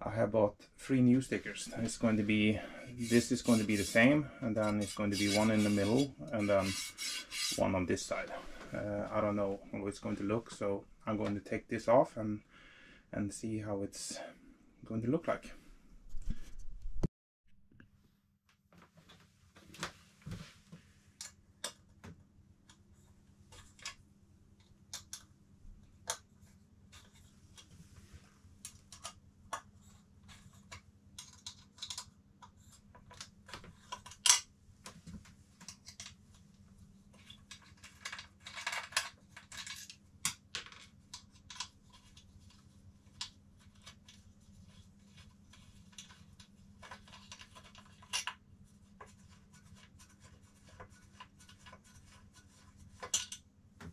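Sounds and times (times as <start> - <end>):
fingers scraping plastic: 3.0 - 7.6.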